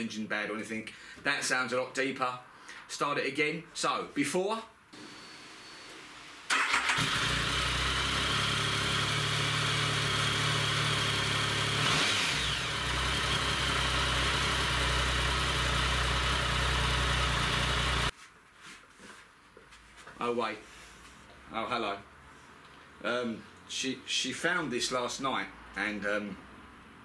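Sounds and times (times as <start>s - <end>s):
motorcycle engine starting and idling: 6.5s - 18.1s.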